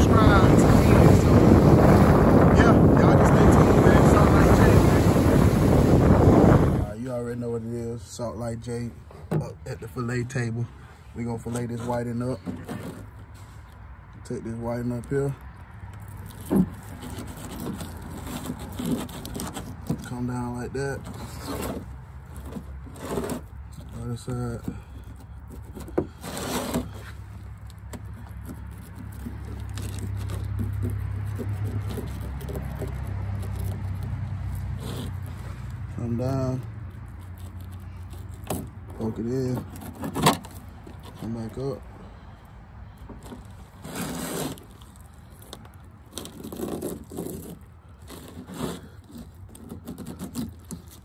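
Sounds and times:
knife scraping: 16.0s - 41.6s, 43.2s - 51.0s
knife cutting through fish: 28.2s - 35.3s.

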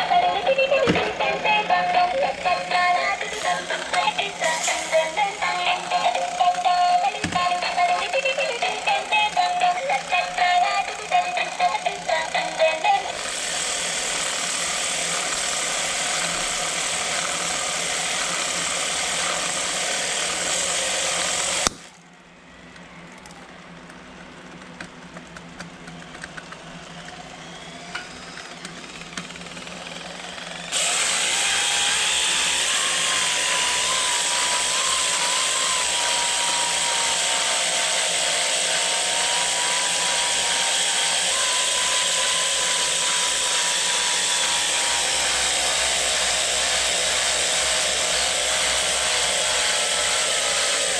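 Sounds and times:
wavering whine: 0.0s - 13.2s
toy robot harsh buzz: 0.0s - 21.7s, 27.3s - 50.9s.

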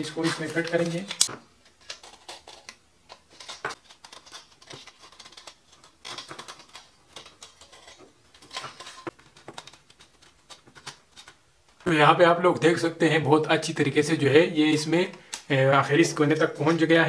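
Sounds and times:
handling clicks scrapes and rustles: 0.1s - 11.4s.

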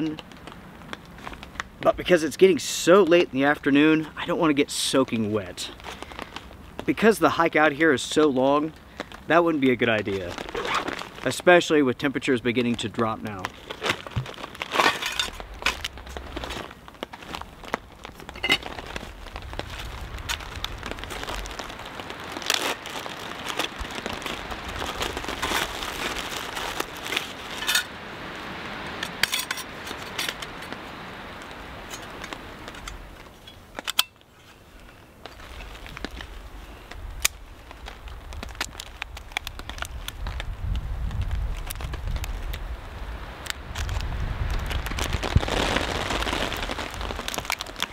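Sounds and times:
crackly hiss: 0.0s - 47.9s
packaging crinkling: 8.7s - 11.5s, 12.6s - 28.0s, 29.0s - 42.6s, 43.4s - 47.9s
wind rumble on microphone: 15.1s - 33.4s, 35.4s - 47.9s.

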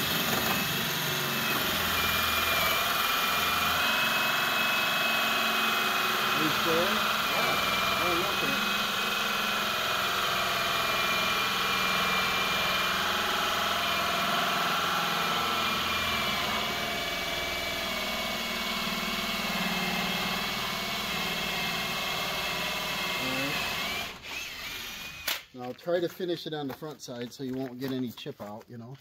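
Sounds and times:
power drill boring with hole saw: 0.0s - 25.5s.

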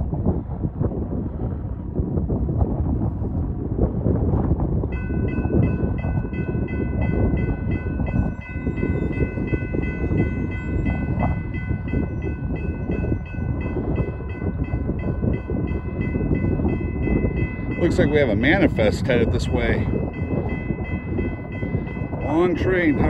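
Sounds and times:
wind rumble on microphone: 0.0s - 23.0s
crossing warning bell ringing: 4.9s - 23.0s.

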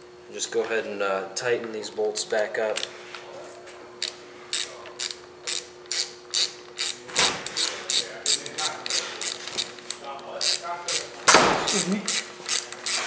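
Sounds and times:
hand ratchet clicking: 4.0s - 13.0s.

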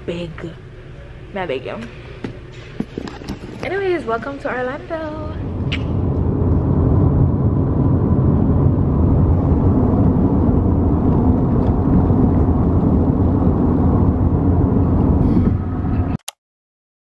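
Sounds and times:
loud low rumbling: 3.6s - 16.2s.

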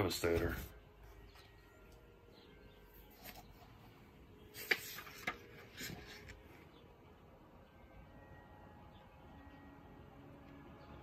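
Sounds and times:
book pages rustling: 3.0s - 6.6s
paper crackle: 4.5s - 6.5s.

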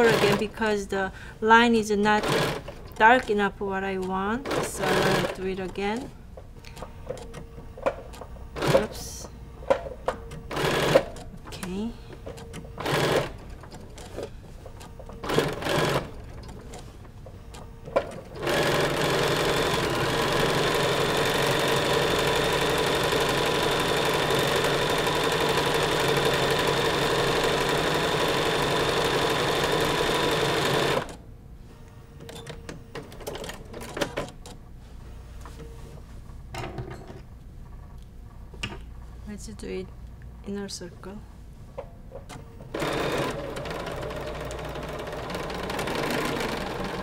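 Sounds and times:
sewing machine stitching: 2.1s - 2.7s, 4.4s - 5.4s, 10.5s - 11.2s, 12.8s - 14.2s, 15.2s - 16.7s, 18.2s - 31.2s, 42.7s - 47.0s.

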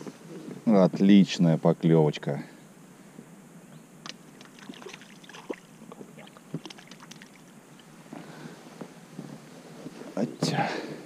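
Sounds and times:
fish splashing at water surface: 4.3s - 7.5s.

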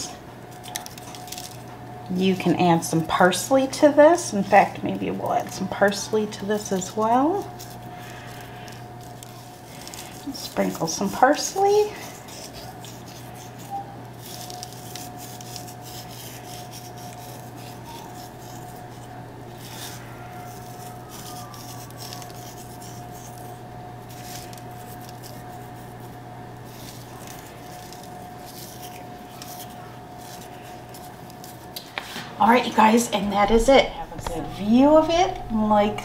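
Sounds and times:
dried herbs rustling: 0.4s - 36.0s
low hum: 32.6s - 36.0s.

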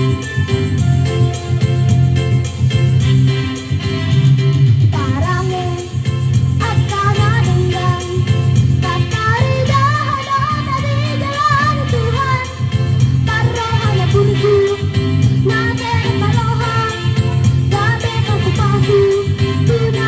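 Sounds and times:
musical accompaniment with bass: 0.0s - 20.0s
girl singing into a microphone: 4.9s - 6.0s, 6.6s - 12.6s, 13.2s - 20.0s.

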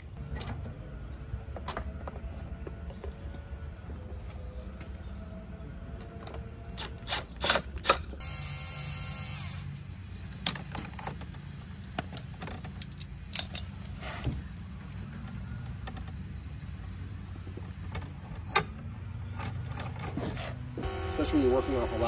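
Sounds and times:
steady low hum: 20.6s - 22.0s.

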